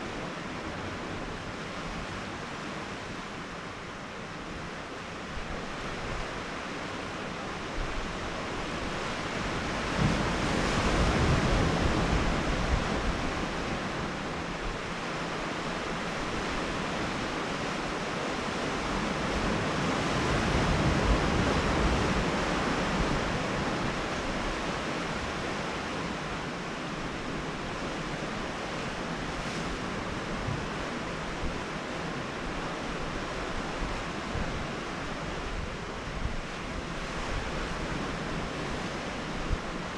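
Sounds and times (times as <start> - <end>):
wind: 0.0 - 39.9
surf washing against rocks: 8.2 - 39.9.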